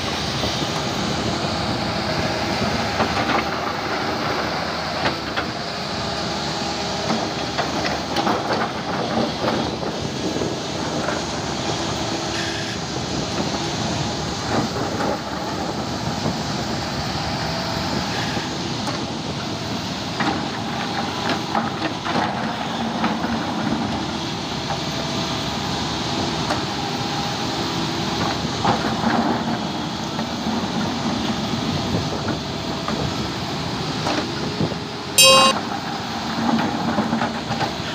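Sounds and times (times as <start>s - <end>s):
short electronic chime: 35.2s - 35.6s.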